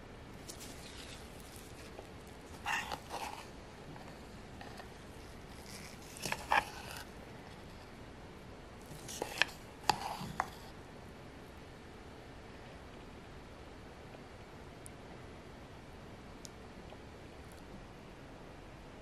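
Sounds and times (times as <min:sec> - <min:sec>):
spoon scraping plastic bowl: 0:00.4 - 0:07.9, 0:08.8 - 0:10.8.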